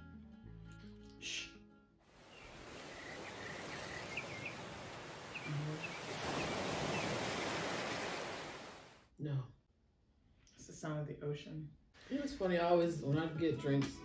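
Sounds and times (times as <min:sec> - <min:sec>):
small birds chirping: 0:02.2 - 0:08.7
ocean surf washing: 0:02.2 - 0:09.0.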